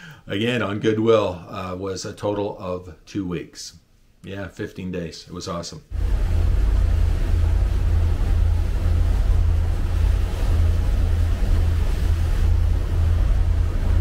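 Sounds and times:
motorboat engine rumble: 0:05.9 - 0:14.0
rush of water: 0:05.9 - 0:14.0
wind buffeting microphone: 0:05.9 - 0:14.0.

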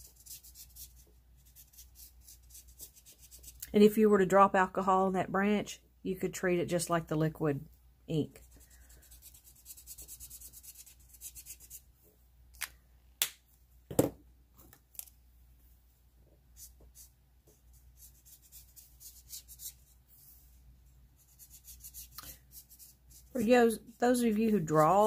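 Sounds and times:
marker scratching on paper: 0:00.0 - 0:03.6, 0:08.4 - 0:11.8, 0:16.6 - 0:20.0, 0:21.2 - 0:25.0.

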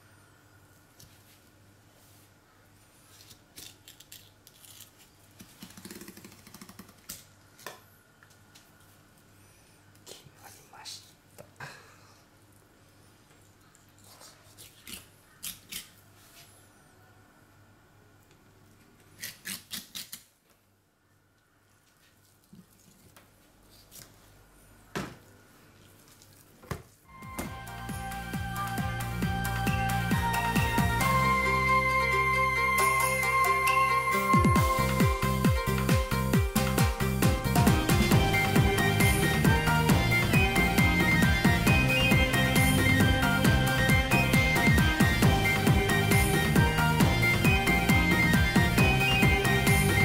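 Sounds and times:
knife rasping: 0:19.2 - 0:20.2
knife scraping fish: 0:19.2 - 0:20.2.

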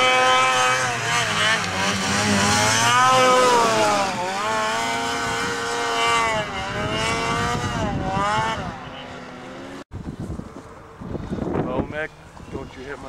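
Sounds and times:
snowmobile engine revving: 0:00.0 - 0:09.8.

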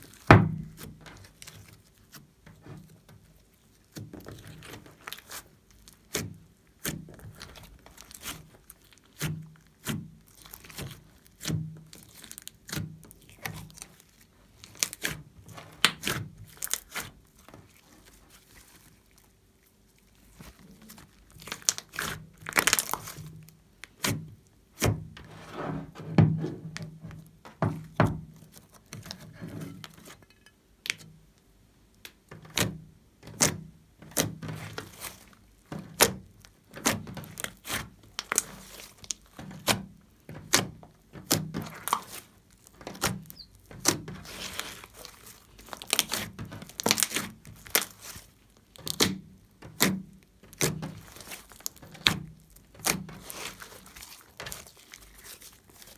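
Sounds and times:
slime popping and squishing: 0:03.8 - 0:19.3, 0:20.0 - 0:24.3, 0:32.0 - 0:55.9.

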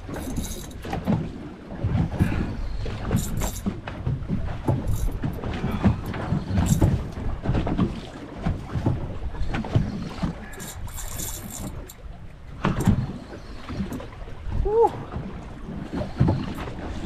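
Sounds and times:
fishing rod and reel knocks: 0:00.0 - 0:01.2, 0:03.0 - 0:03.8, 0:04.6 - 0:07.0, 0:10.6 - 0:12.0
water slapping boat hull: 0:00.0 - 0:17.0.

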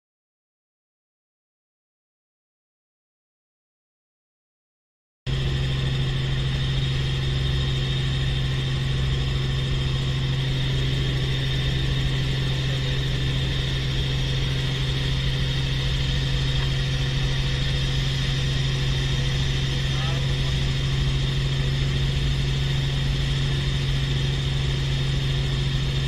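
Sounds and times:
helicopter cabin drone: 0:05.3 - 0:26.0
high-pitched whines: 0:05.3 - 0:26.0.

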